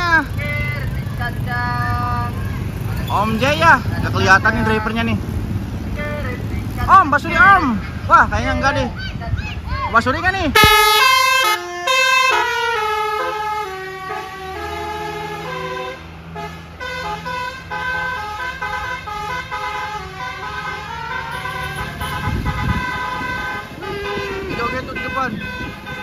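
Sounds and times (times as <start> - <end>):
bus engine running: 0.0 - 26.0
multi-tone bus horn melody: 10.5 - 26.0.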